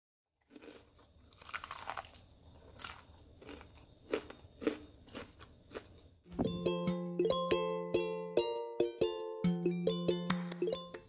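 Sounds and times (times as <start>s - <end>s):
fried chicken crust crunching: 0.4s - 5.9s.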